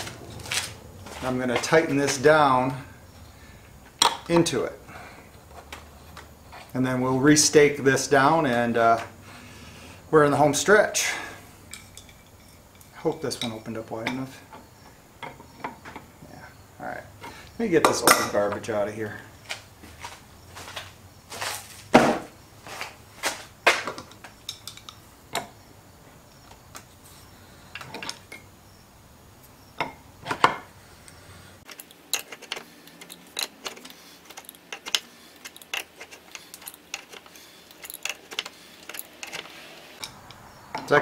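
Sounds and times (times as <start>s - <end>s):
metal tools clinking on wooden bench: 0.0s - 2.9s, 3.8s - 9.2s, 10.3s - 16.2s, 16.9s - 25.6s, 27.7s - 28.6s, 29.7s - 30.7s, 31.6s - 41.0s
wrench ticking and scraping: 11.1s - 16.1s, 31.6s - 41.0s.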